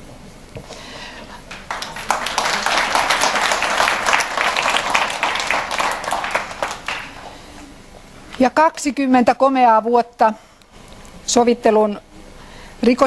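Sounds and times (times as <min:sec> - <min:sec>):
audience applauding: 0:01.5 - 0:07.6.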